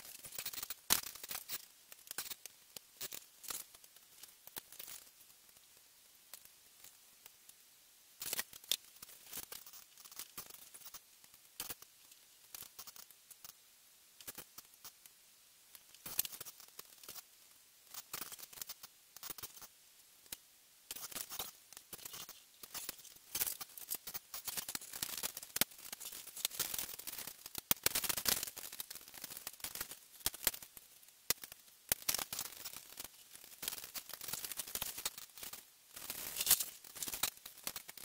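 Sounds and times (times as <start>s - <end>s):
paper rustling: 32.1s - 37.8s.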